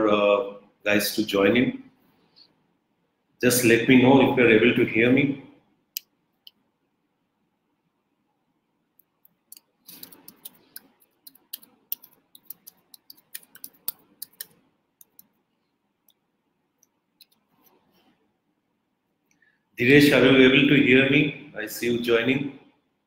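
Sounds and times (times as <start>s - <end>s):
keys clicking: 9.5s - 15.2s.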